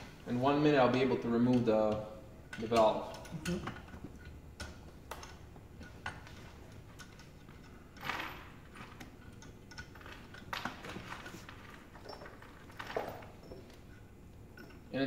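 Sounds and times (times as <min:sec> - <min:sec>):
light metal clicks and taps: 0:00.9 - 0:08.0.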